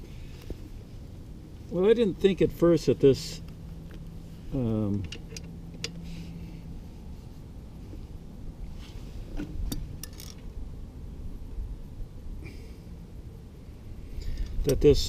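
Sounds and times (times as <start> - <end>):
low steady hum: 0.0 - 15.0
small metal parts clicking: 9.7 - 10.4.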